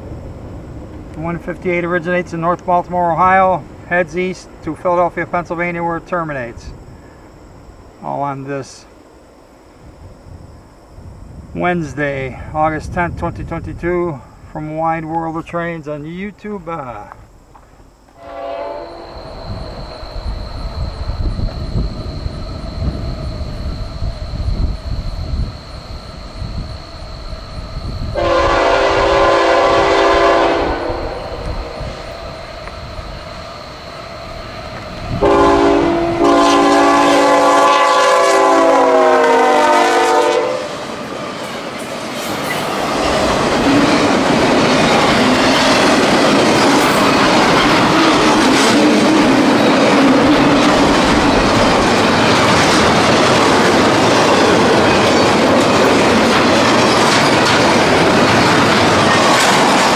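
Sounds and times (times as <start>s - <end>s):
locomotive air horn: 18.2s - 19.2s, 28.2s - 31.4s, 35.2s - 40.8s
train cars rumbling on rails: 18.2s - 59.9s.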